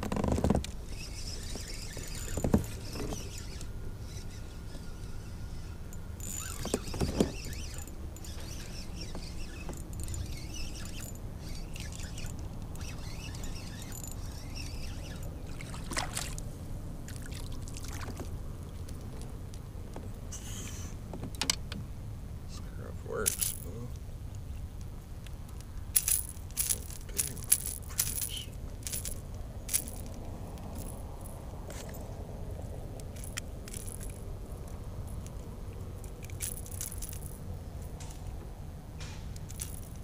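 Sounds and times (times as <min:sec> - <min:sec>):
fishing reel cranking: 0:06.2 - 0:15.4.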